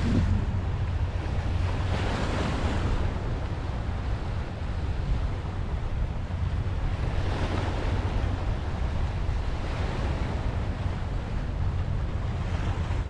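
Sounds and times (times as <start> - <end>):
waves washing against rocks: 0.0 - 3.0
wind buffeting microphone: 0.0 - 13.0.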